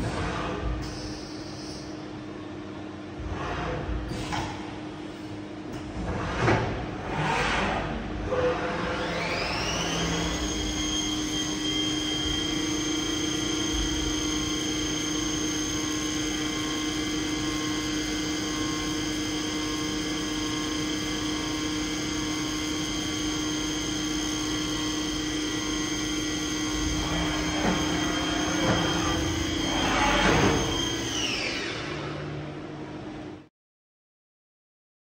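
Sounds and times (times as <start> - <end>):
machine spindle whine: 8.3 - 32.4.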